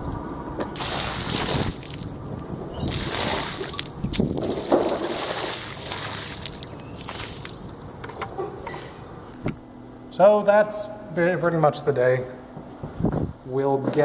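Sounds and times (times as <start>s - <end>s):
water splashing onto asphalt: 0.7s - 2.2s, 2.8s - 7.8s.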